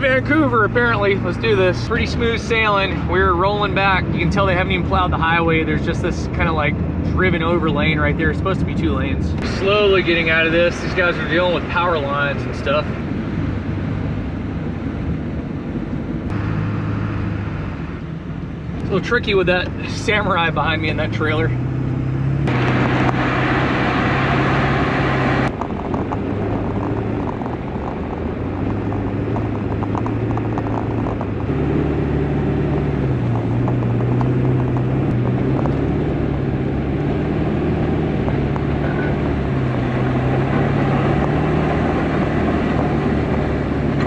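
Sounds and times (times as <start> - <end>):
diesel engine hum: 0.0 - 44.0
tyre and wind noise: 21.6 - 44.0.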